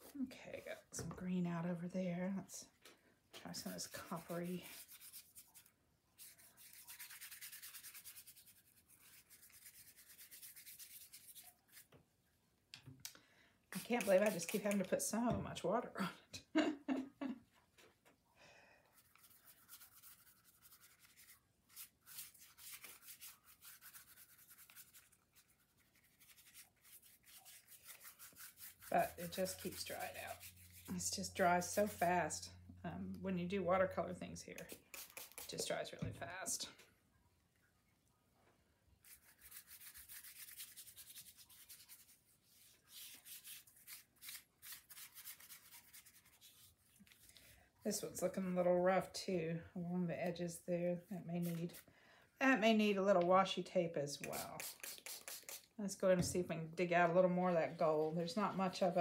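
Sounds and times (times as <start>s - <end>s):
paintbrush scratching on paper: 3.5s - 11.9s, 13.8s - 14.8s, 18.9s - 32.4s, 34.6s - 35.9s, 39.0s - 47.5s, 54.2s - 55.7s.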